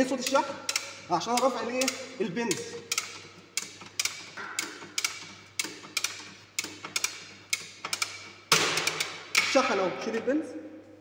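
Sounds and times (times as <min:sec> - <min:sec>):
ratchet lever double clicks: 0:00.0 - 0:09.7
spring mechanism clank: 0:00.0 - 0:09.8.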